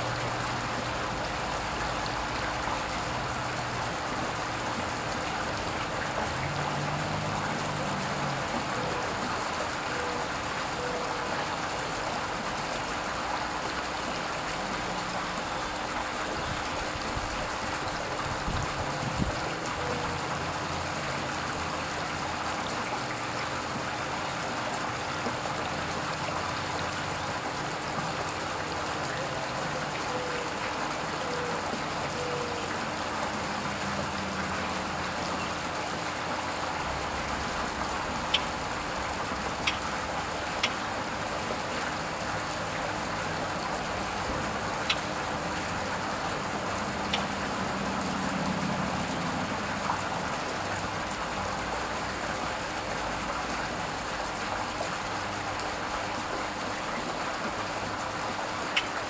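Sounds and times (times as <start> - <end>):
fountain water trickling and splashing: 0.0 - 59.0.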